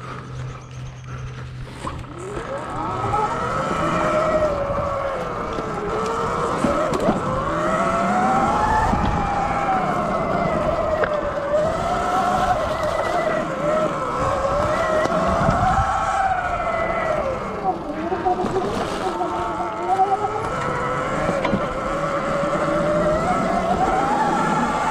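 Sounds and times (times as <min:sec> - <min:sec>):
electric motor whining: 0:00.0 - 0:24.9
low rumble of riding: 0:00.0 - 0:24.9.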